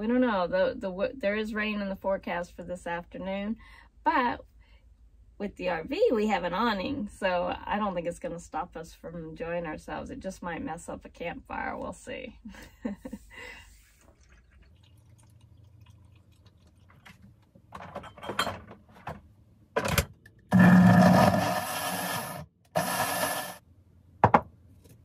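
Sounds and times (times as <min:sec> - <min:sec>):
kitchen knocks and clatter: 0:17.7 - 0:20.2, 0:24.2 - 0:24.5
blender running: 0:20.5 - 0:23.6.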